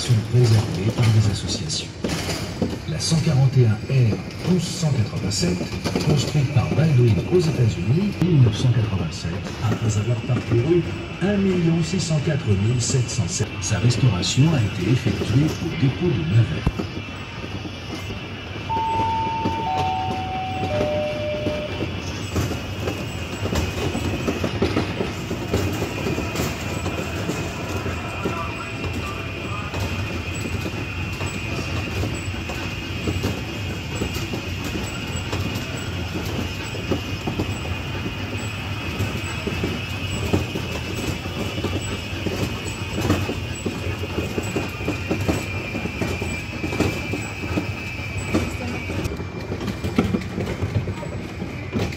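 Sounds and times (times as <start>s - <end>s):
ride-on train clattering: 0.0s - 51.9s.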